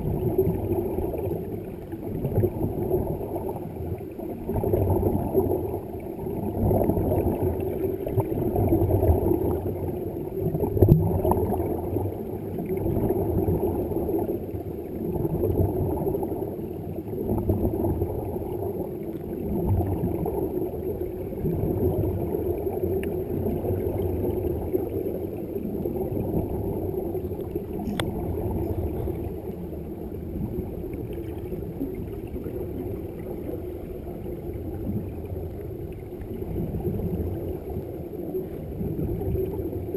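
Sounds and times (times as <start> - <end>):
underwater rumble and gurgling: 0.0 - 39.9
faint click: 27.8 - 28.2.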